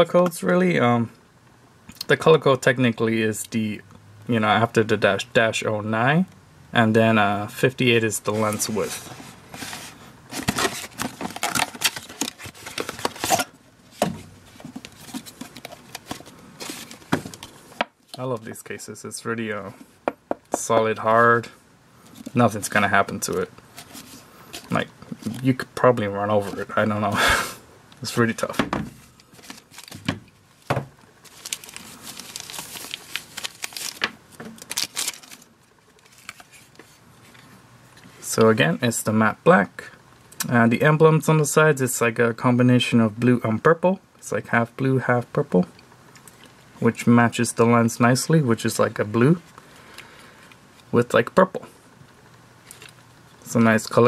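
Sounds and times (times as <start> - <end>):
cardboard box handling scrapes: 8.3 - 13.5
cloth pouch rustling: 31.2 - 36.5.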